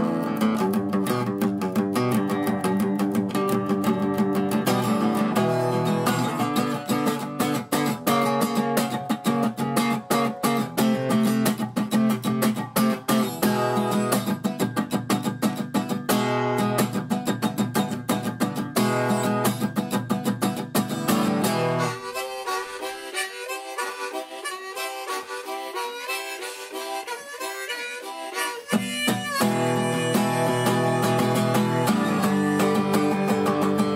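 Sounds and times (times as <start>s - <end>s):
strummed acoustic guitar: 0.0s - 33.9s
harmonica: 2.0s - 33.9s.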